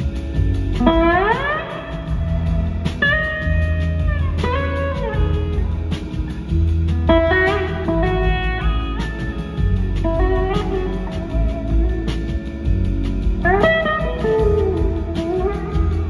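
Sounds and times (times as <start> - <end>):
bass guitar: 0.0 - 16.0
drums: 0.0 - 16.0
electric slide guitar: 0.0 - 16.0.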